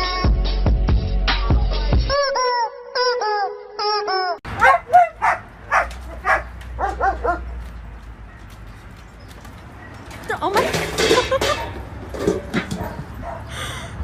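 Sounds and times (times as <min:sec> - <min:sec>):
dog yipping: 0:04.6 - 0:07.5.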